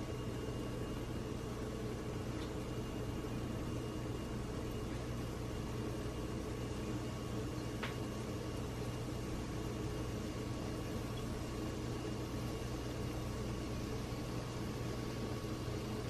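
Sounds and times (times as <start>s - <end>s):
low kitchen hum: 0.0s - 16.0s
small click: 7.8s - 8.0s.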